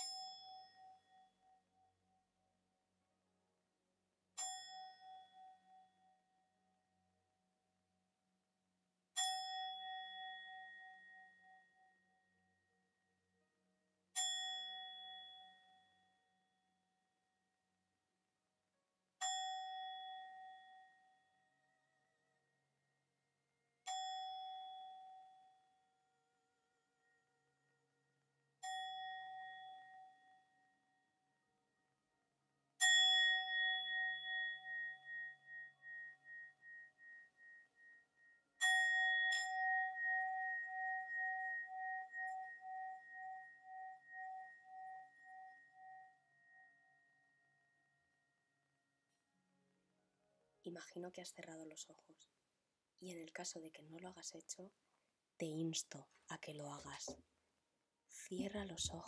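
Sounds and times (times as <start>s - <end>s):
singing bowl ringing: 32.8s - 47.4s.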